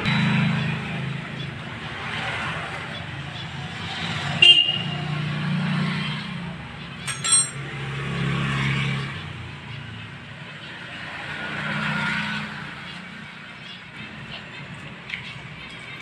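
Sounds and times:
hum of motor traffic: 0.0 - 16.0
metal parts clinking: 7.0 - 7.6.

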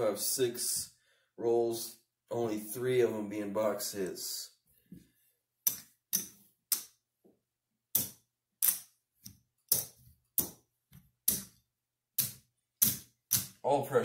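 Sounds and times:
casino chips clicking: 8.0 - 10.6.

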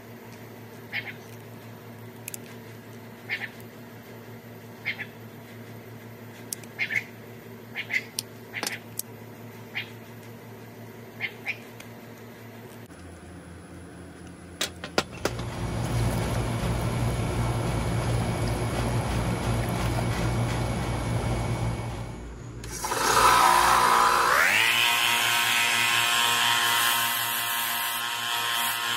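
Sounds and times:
hose water running into bucket: 15.2 - 20.8, 22.6 - 25.1
belt sander motor whine: 15.2 - 28.9.

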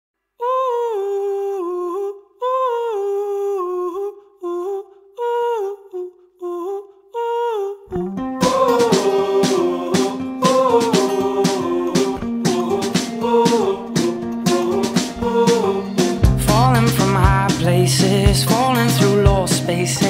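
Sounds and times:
band with guitar and beat: 8.2 - 20.0.

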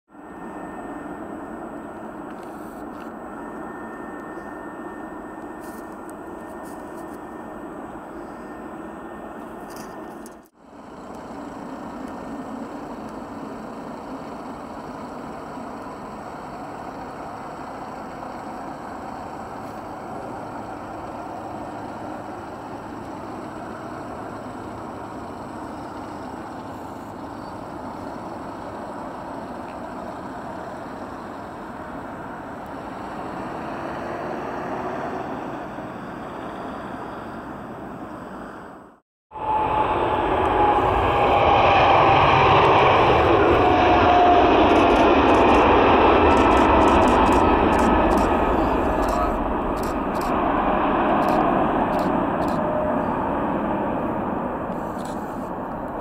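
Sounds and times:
faint high whine: 0.1 - 33.1
jet engines at taxi power: 0.1 - 56.0.

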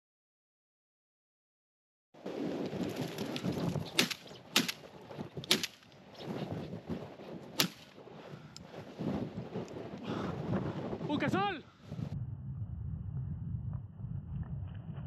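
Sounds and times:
shotgun shots: 3.9 - 4.8, 5.4 - 5.8, 7.6 - 7.9.

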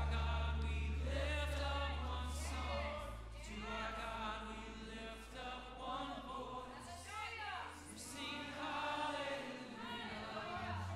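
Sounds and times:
sustained low bass notes: 0.0 - 6.5
group singing worship song: 0.0 - 10.9.

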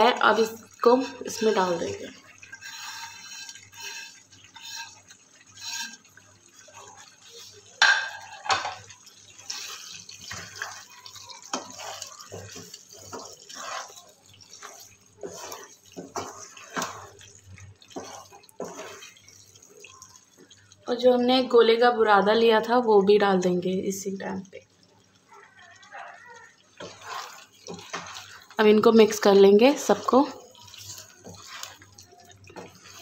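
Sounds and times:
light frying sizzle: 0.0 - 33.0
spatula scraping a wok: 0.4 - 8.8, 9.4 - 19.7, 26.8 - 33.0.

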